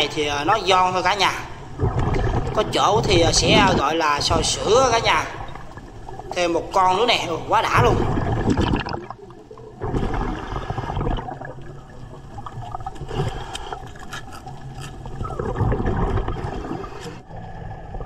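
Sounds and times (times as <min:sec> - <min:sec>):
exhaled bubbles: 0:01.5 - 0:18.0
diver breathing through regulator: 0:13.0 - 0:15.2.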